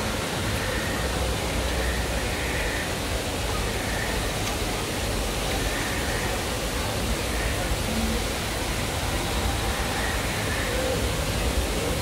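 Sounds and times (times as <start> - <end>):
distant voices murmuring: 0.0 - 12.0.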